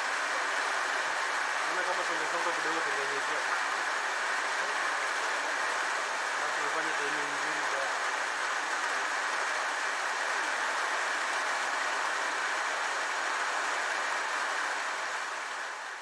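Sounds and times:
steady rushing hiss: 0.0 - 16.0.

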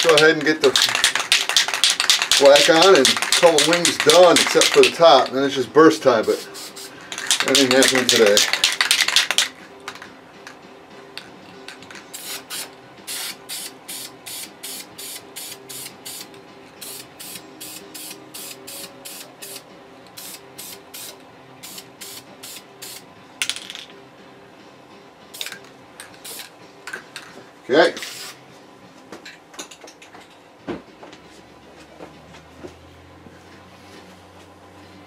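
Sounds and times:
spray paint can hissing: 0.0 - 5.0, 6.2 - 9.5, 12.1 - 19.6, 20.2 - 23.0, 26.2 - 26.5, 28.0 - 28.4.

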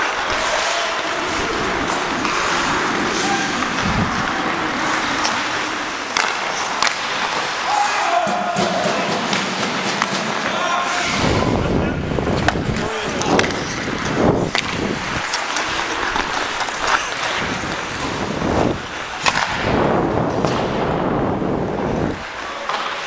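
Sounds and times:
skate blades scraping ice: 0.0 - 11.4, 12.1 - 20.9
wind on microphone: 1.0 - 6.0, 11.1 - 15.2, 17.3 - 22.4.

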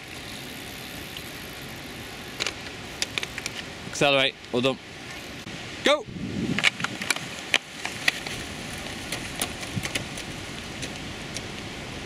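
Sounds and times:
sharp clicks and knocks from bikes: 0.0 - 3.7, 6.6 - 11.7
steady outdoor hiss: 0.0 - 12.0.

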